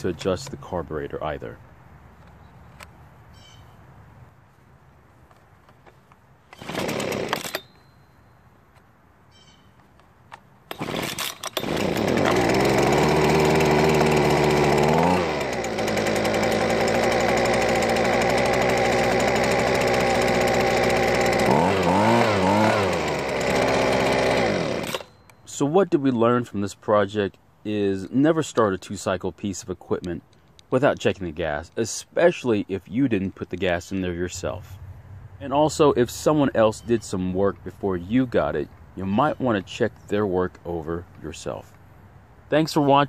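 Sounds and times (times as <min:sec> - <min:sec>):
leaf blower engine running: 0:06.5 - 0:07.7, 0:10.7 - 0:25.2
starter rope pull: 0:06.5 - 0:07.7, 0:10.7 - 0:25.3.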